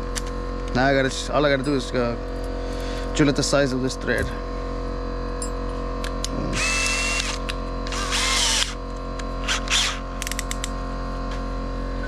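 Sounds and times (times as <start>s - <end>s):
drill clicks: 6.0s - 10.7s
cordless drill whining: 6.5s - 8.8s, 9.4s - 10.6s.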